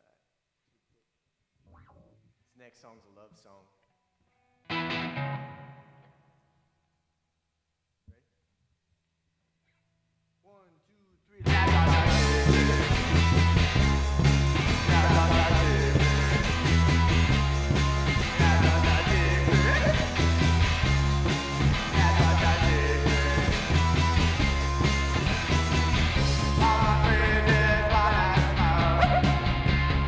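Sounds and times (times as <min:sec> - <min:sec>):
electric guitar: 0:04.3 - 0:06.4, 0:11.5 - 0:30.0
person singing: 0:11.4 - 0:13.3, 0:14.7 - 0:16.8, 0:18.2 - 0:20.3, 0:21.8 - 0:23.9, 0:26.3 - 0:29.5
drum kit beat: 0:11.4 - 0:30.0
electric bass: 0:11.4 - 0:30.0.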